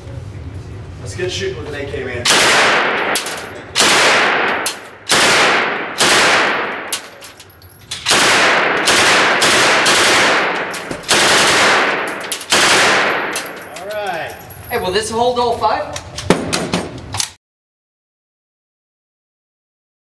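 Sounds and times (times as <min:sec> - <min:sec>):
rifle shots ringing: 0:02.3 - 0:07.4, 0:08.0 - 0:13.8.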